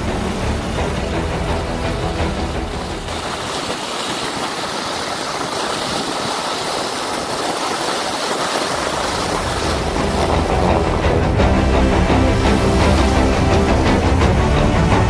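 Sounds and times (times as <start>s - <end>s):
skis hissing over snow: 2.1s - 11.0s.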